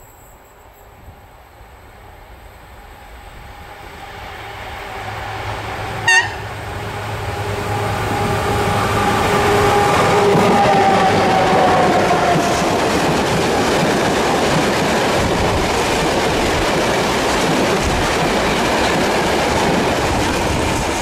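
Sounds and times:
electric locomotive rumble and hum: 0:01.1 - 0:21.0
locomotive horn toot: 0:06.0 - 0:12.4.

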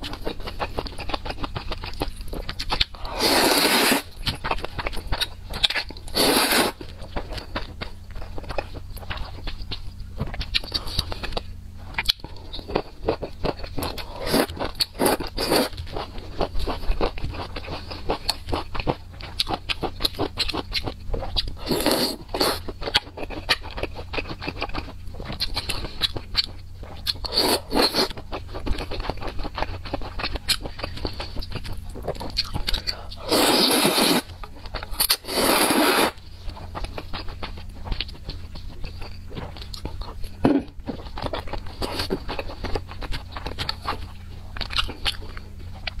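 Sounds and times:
wet chewing and mouth sounds: 0:00.0 - 0:46.0.

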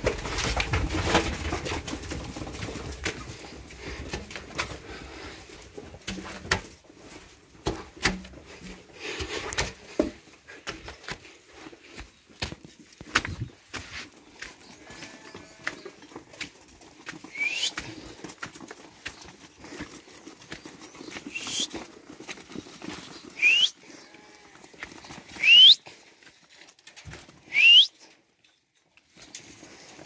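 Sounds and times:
hooves clicking and shuffling: 0:00.0 - 0:30.0
person whistling sharply: 0:17.3 - 0:17.8, 0:21.3 - 0:21.7, 0:23.4 - 0:23.8, 0:25.4 - 0:25.8, 0:27.5 - 0:28.0.

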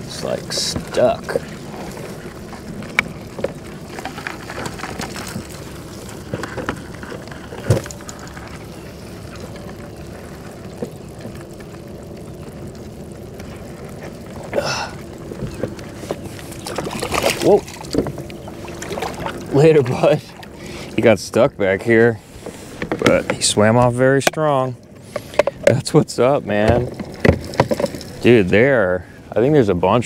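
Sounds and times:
water trickling: 0:00.0 - 0:22.7.

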